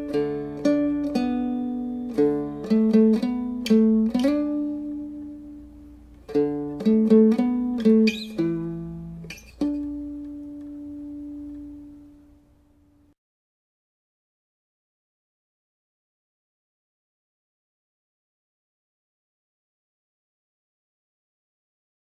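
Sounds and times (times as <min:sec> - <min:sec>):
plucked string melody: 0:00.0 - 0:13.2.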